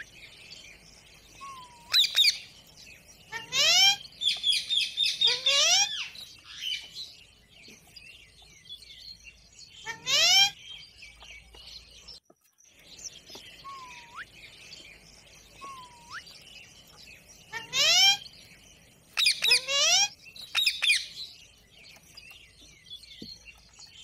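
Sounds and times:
parakeets screeching: 0.0s - 7.2s, 9.7s - 10.7s, 13.5s - 21.5s
soft chirping: 0.0s - 24.0s.

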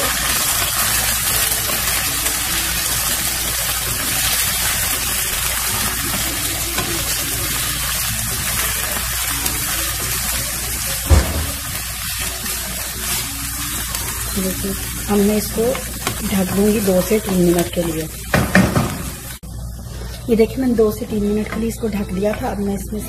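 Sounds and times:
vegetables sizzling in hot oil: 0.0s - 19.4s
low thump: 11.1s - 11.7s
wooden spatula stirring: 11.6s - 18.7s.

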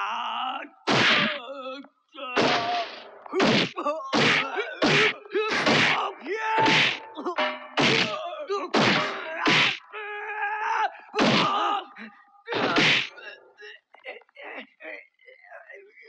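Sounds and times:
men grunting and groaning: 0.0s - 15.0s
heavy punch whacks: 0.9s - 1.3s, 2.4s - 6.0s, 6.6s - 7.0s, 7.8s - 8.2s, 8.8s - 9.8s, 11.2s - 11.5s, 12.6s - 13.1s.

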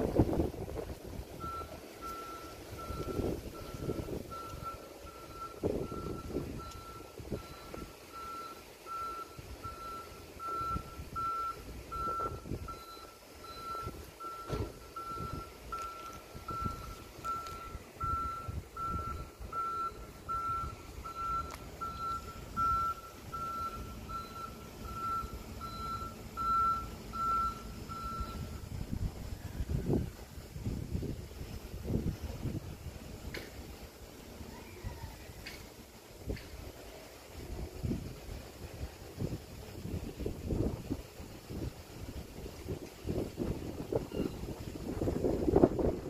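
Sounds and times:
low road and wind rumble: 0.0s - 46.0s
level crossing alarm beeping: 1.4s - 28.6s, 44.1s - 44.4s.

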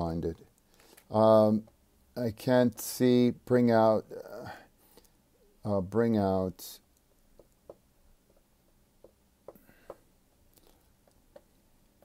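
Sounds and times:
stylus tapping on tablet screen: 7.3s - 10.1s, 11.0s - 11.6s.

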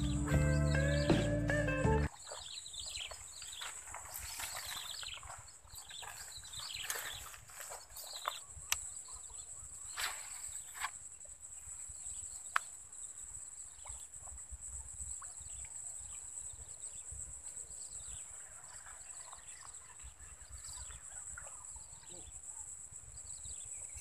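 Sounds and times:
faint bird chirps: 2.0s - 24.0s.

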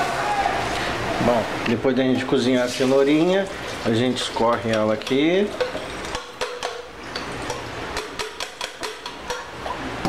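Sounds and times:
saucepan tapping on plastic strainer: 7.5s - 9.5s.

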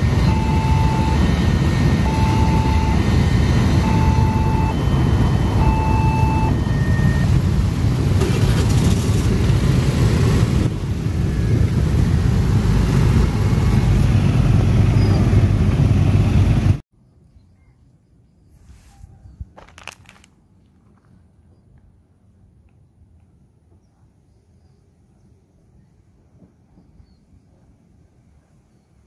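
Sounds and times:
short pitched tones: 0.0s - 7.4s
motorcycle engines rumbling: 0.0s - 16.8s.

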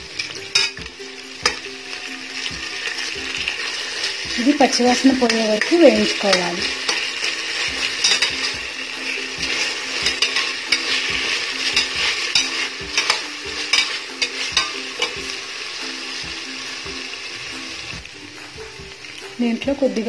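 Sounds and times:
oil sizzling: 0.0s - 20.0s
spatula scraping pot: 2.7s - 15.3s.

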